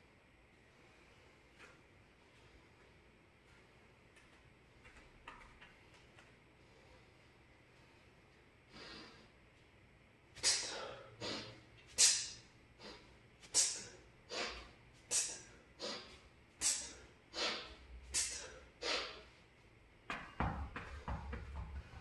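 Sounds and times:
man breathing forcefully: 6.6s - 9.4s, 10.4s - 19.4s.

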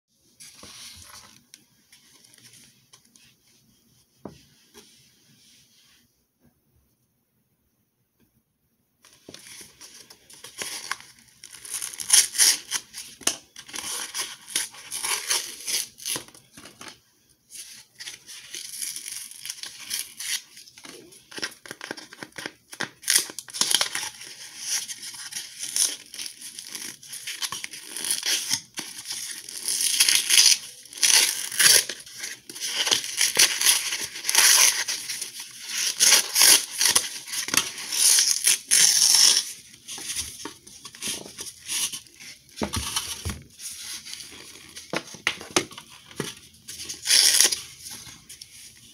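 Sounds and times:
paper wrapping crumpling: 18.0s - 48.9s.

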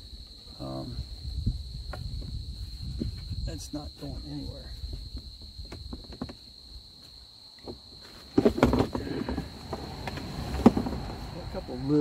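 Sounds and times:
high insect trill: 0.0s - 12.0s
hard objects knocking and rattling: 5.6s - 6.5s, 7.7s - 11.1s.

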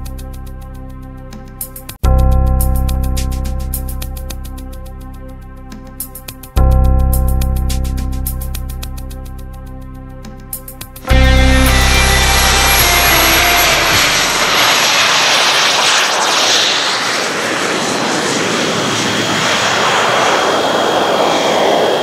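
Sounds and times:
model jet turbine roaring: 11.1s - 22.0s.

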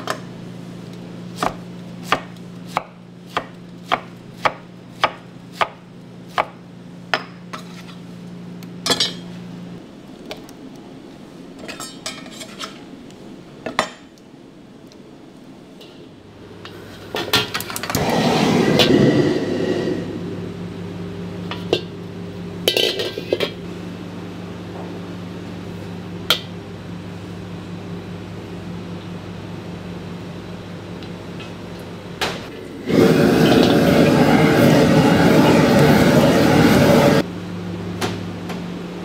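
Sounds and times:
kitchen hum: 0.0s - 39.0s
loud rushing noise: 18.0s - 20.6s, 32.8s - 37.2s.

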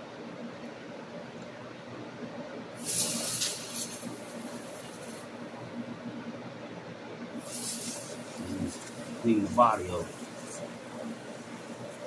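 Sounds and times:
aerosol spray can hissing: 2.8s - 5.3s, 7.4s - 12.0s.

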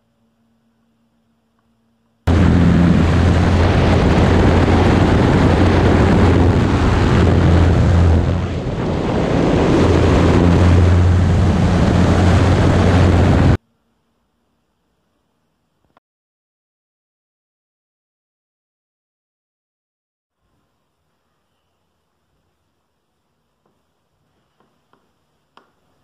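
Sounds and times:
propeller plane engine drone: 2.2s - 13.6s
heavy wind rush: 2.3s - 13.6s.

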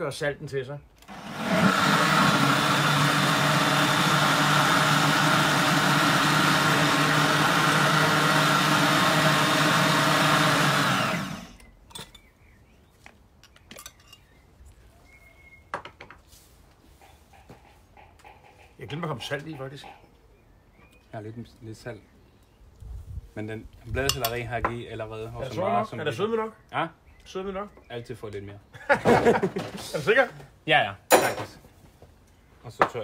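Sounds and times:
blender running: 1.0s - 11.7s.

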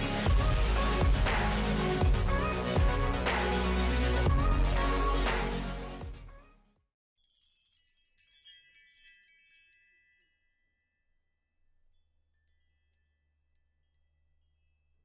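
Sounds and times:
high-pitched chime tinkles: 7.2s - 15.0s.

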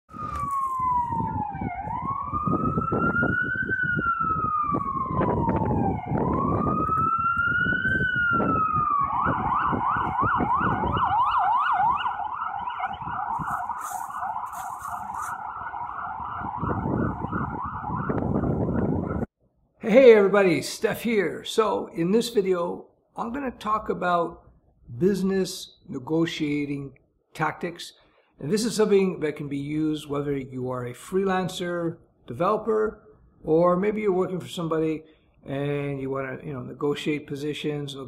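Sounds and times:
emergency vehicle siren: 0.1s - 19.3s.

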